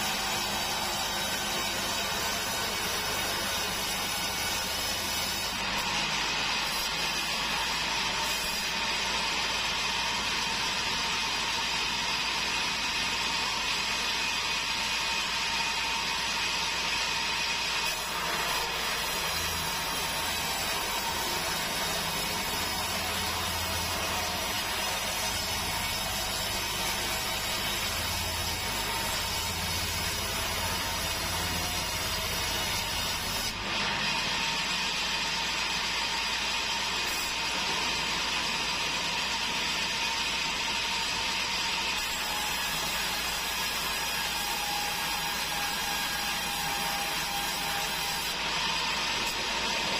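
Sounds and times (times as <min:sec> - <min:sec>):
band saw ripping hardwood: 0:00.0 - 0:09.0, 0:17.9 - 0:34.2.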